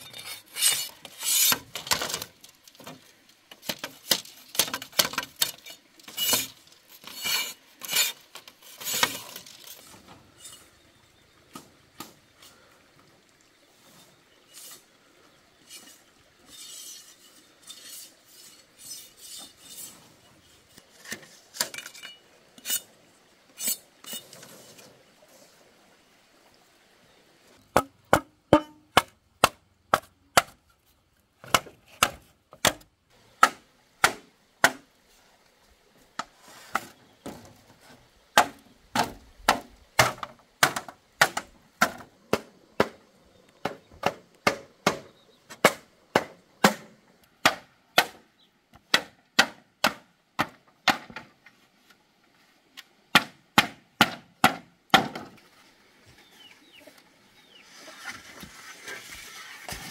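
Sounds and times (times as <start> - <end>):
machete chopping wood: 27.8 - 30.6, 31.4 - 34.8, 38.4 - 43.0, 43.6 - 48.2, 48.9 - 51.2, 53.2 - 55.3.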